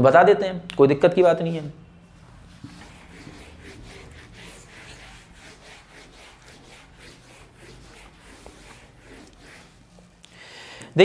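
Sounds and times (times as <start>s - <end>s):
eraser rubbing whiteboard: 2.2s - 10.2s.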